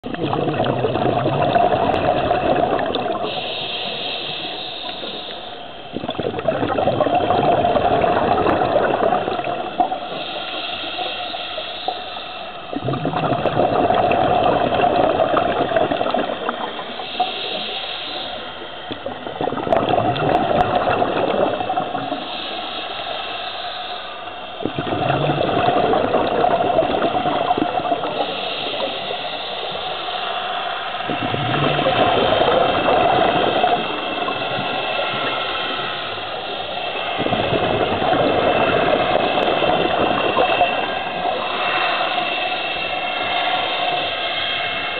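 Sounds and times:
bubbling exhalations underwater: 0.0s - 3.5s, 5.9s - 10.3s, 12.7s - 17.8s, 18.9s - 22.4s, 24.6s - 29.2s, 31.0s - 35.4s, 36.8s - 42.4s
hissing regulator inhalations: 2.5s - 6.4s, 8.3s - 19.5s, 21.5s - 44.9s.

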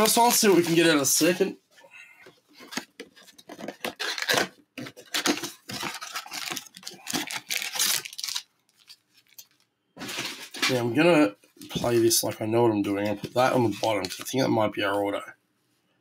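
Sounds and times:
cardboard tearing and crinkling: 2.6s - 10.9s.

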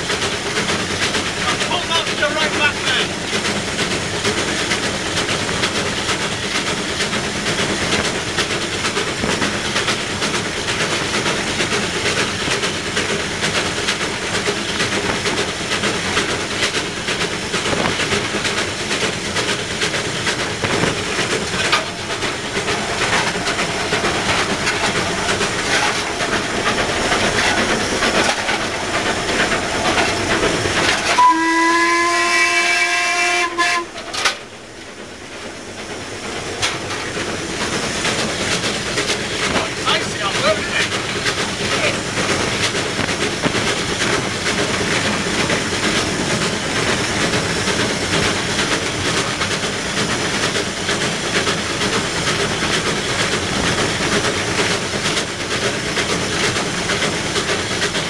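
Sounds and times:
steam locomotive running: 0.0s - 58.0s
steam whistle chord: 31.1s - 34.0s.

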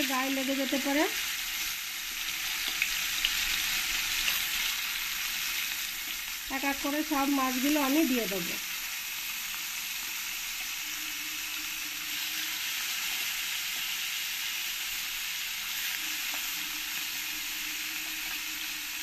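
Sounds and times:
fish frying in hot oil: 0.0s - 19.0s.

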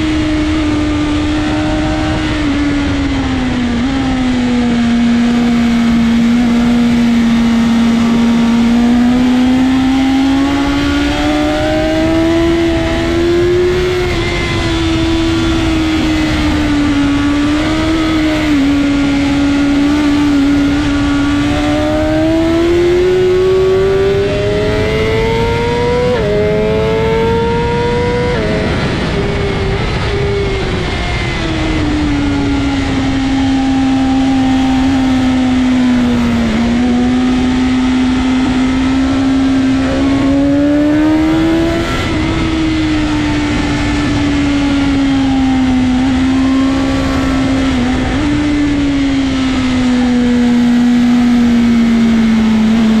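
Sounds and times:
motorcycle engine revving: 0.0s - 53.0s
wind rush over microphone: 0.0s - 53.0s.

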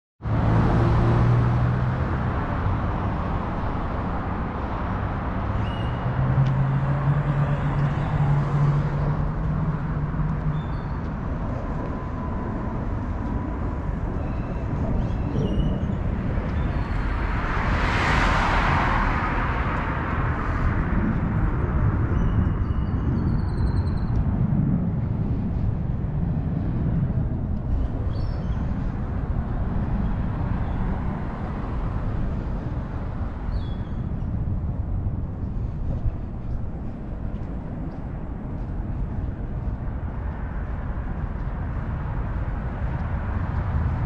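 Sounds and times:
vehicle rushing past: 0.2s - 23.1s
traffic engines rumbling: 0.2s - 44.0s.

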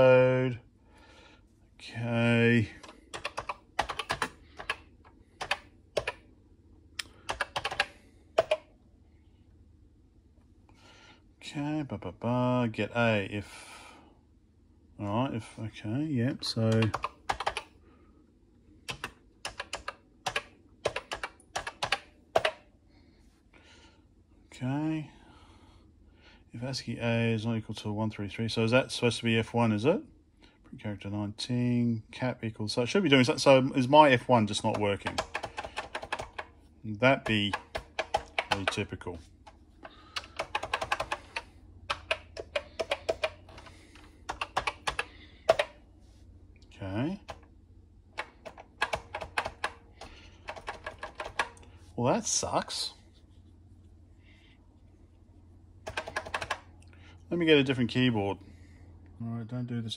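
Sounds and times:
clicky keyboard keystrokes: 2.8s - 4.8s, 5.4s - 6.2s, 7.0s - 8.7s, 16.7s - 17.7s, 18.9s - 22.6s, 34.7s - 36.5s, 37.2s - 38.8s, 40.2s - 45.8s, 48.2s - 51.6s, 55.8s - 56.6s
keyboard key clacks: 2.8s - 4.8s, 5.4s - 6.2s, 44.3s - 45.8s.

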